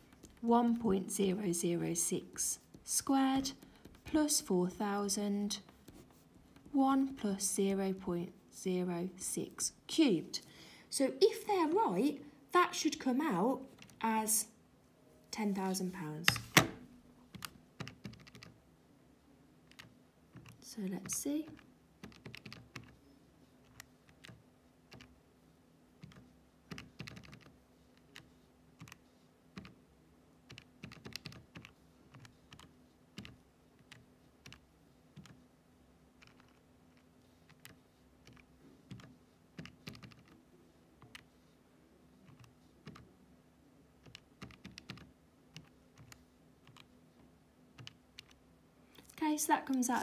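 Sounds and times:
faint steady hum: 0:00.0 - 0:50.0
calculator keys clicking: 0:17.4 - 0:18.5, 0:19.7 - 0:23.0, 0:23.6 - 0:25.1, 0:26.0 - 0:29.0, 0:30.5 - 0:34.6, 0:35.2 - 0:35.4, 0:36.2 - 0:40.4, 0:42.2 - 0:43.1, 0:44.0 - 0:46.9, 0:47.8 - 0:48.4.

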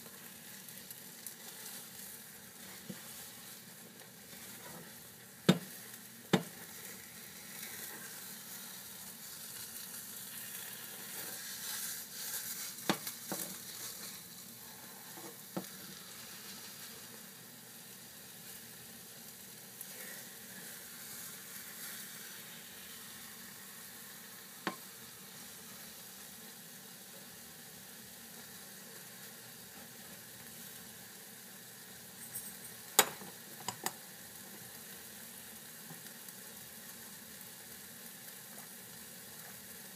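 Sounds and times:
eggs sizzling in a frying pan: 0:00.0 - 0:39.9
spatula scraping a pan: 0:01.2 - 0:10.0, 0:10.7 - 0:16.8
spatula knocking on pan: 0:05.5 - 0:05.7, 0:06.3 - 0:06.5.

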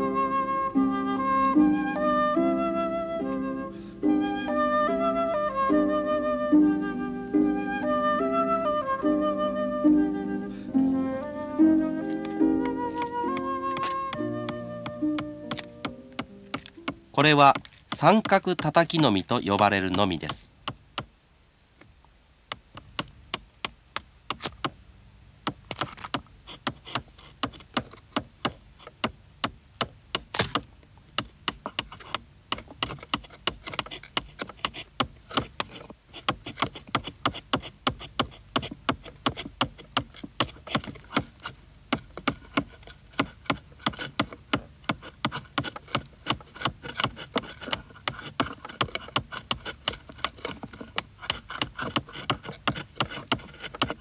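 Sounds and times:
mallet tapping a chisel: 0:12.1 - 0:21.1, 0:22.5 - 0:24.8, 0:25.4 - 0:54.0.

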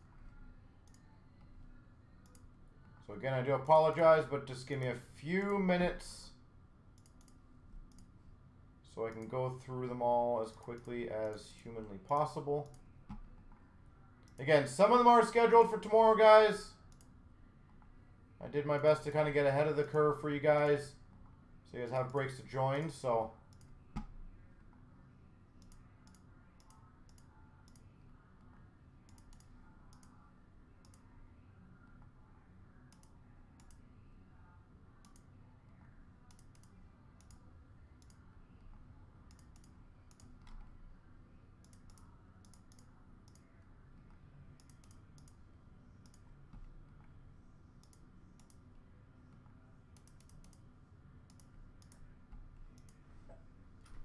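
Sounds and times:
low room hum: 0:00.0 - 0:54.0
mouse clicking: 0:00.8 - 0:01.6, 0:02.2 - 0:03.0, 0:07.0 - 0:08.1, 0:09.1 - 0:09.3, 0:10.5 - 0:13.6, 0:16.9 - 0:17.1, 0:23.5 - 0:24.2, 0:25.6 - 0:30.2, 0:30.8 - 0:31.1, 0:32.9 - 0:33.9, 0:35.0 - 0:37.4, 0:38.0 - 0:40.8, 0:41.6 - 0:45.4, 0:46.0 - 0:47.1, 0:47.8 - 0:48.7, 0:49.4 - 0:50.7, 0:51.3 - 0:52.1, 0:52.7 - 0:53.0
keyboard typing: 0:41.6 - 0:45.4, 0:50.0 - 0:50.6.

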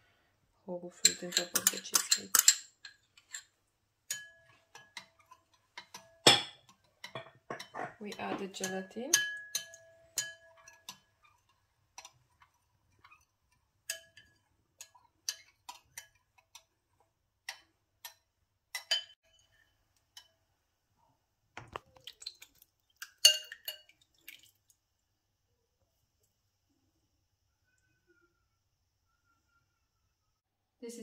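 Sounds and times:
spoon clinking against glass bowl: 0:01.0 - 0:03.5, 0:04.1 - 0:11.4, 0:13.8 - 0:16.2, 0:17.5 - 0:19.6, 0:23.0 - 0:24.0.

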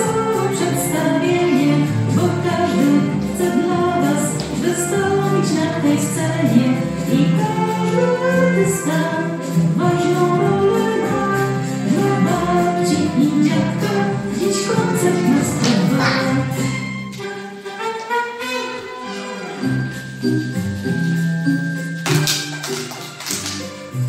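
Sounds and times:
person singing: 0:00.0 - 0:19.4
instrumental accompaniment: 0:00.0 - 0:24.0
light regular percussion: 0:19.8 - 0:24.0.

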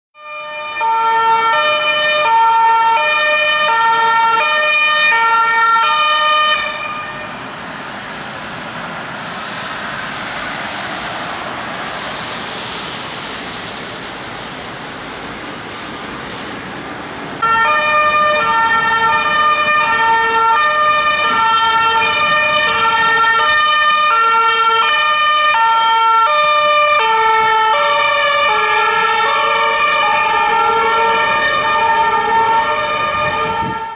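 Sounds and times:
two-tone ambulance siren: 0:00.2 - 0:09.2, 0:17.4 - 0:33.9
steady rushing noise: 0:07.1 - 0:17.4.

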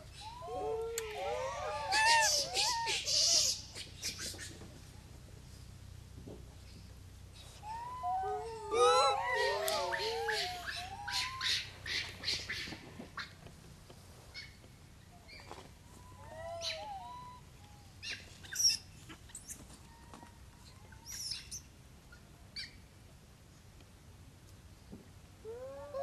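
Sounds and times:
monkey cooing: 0:00.2 - 0:03.3, 0:07.6 - 0:11.6
monkeys squeaking and chirping: 0:01.8 - 0:04.2, 0:07.7 - 0:11.6.

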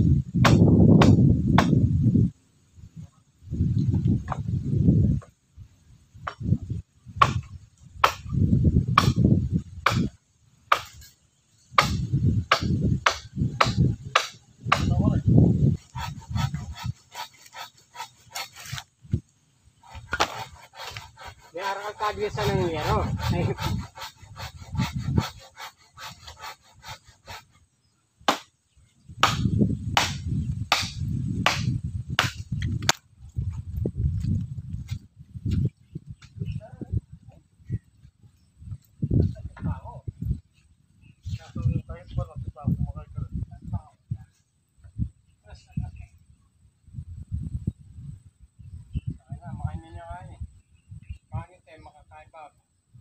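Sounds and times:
dull low thuds: 0:00.0 - 0:02.3, 0:03.6 - 0:05.4, 0:06.1 - 0:11.0, 0:29.1 - 0:36.6
sharp knocks on wood: 0:00.4 - 0:01.8, 0:07.2 - 0:08.3, 0:09.0 - 0:09.2, 0:09.8 - 0:10.1, 0:11.8 - 0:15.0, 0:28.3 - 0:28.5, 0:29.2 - 0:33.0
tool striking wood: 0:00.4 - 0:01.8, 0:07.2 - 0:10.1, 0:10.7 - 0:11.1, 0:11.7 - 0:15.0, 0:15.9 - 0:18.8, 0:19.8 - 0:21.4, 0:28.2 - 0:28.5, 0:29.2 - 0:33.0
scraping strokes on wood: 0:09.0 - 0:27.7.

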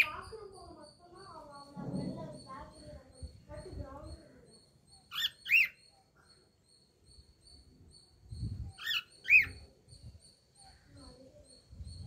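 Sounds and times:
cockatiel chirping: 0:05.0 - 0:05.9, 0:08.7 - 0:09.6.

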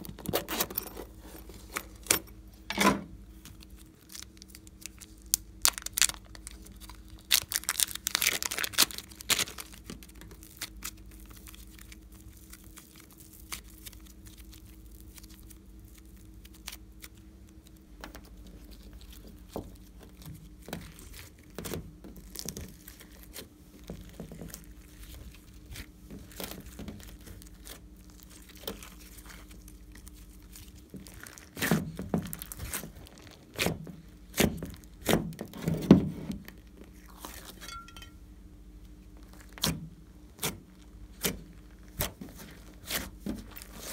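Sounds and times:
faint steady hum: 0:00.0 - 0:43.9
plastic pouch crinkling and tearing: 0:03.4 - 0:17.8, 0:26.3 - 0:31.6, 0:32.3 - 0:33.6
slime squishing: 0:03.4 - 0:35.2.

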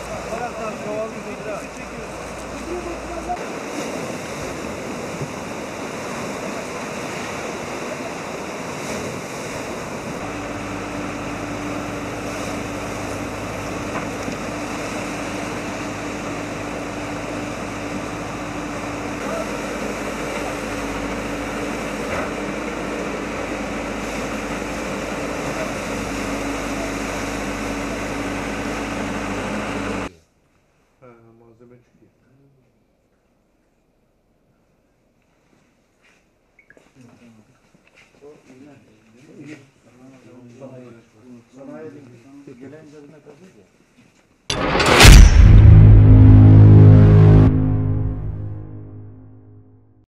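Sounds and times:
floodwater rushing in channel: 0:00.0 - 0:30.0
diesel engine humming: 0:10.2 - 0:30.1.

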